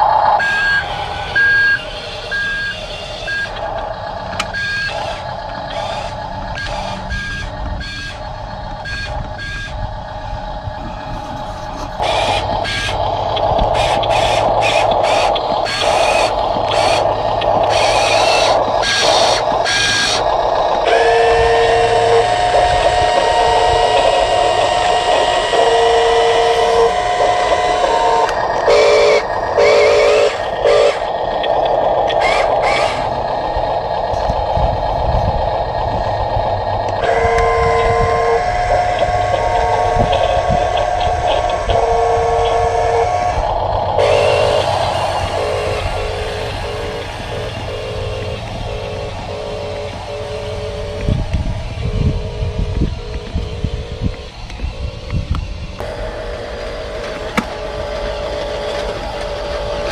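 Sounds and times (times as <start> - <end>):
toy truck engine drone: 0.0 - 59.9
reversing beeps: 0.4 - 3.7, 4.4 - 8.2, 8.8 - 9.8.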